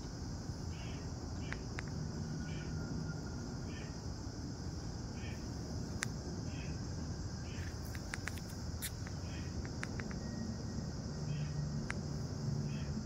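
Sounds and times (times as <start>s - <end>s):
high-pitched insect chorus: 0.0s - 13.0s
sharp ticks: 7.8s - 10.2s.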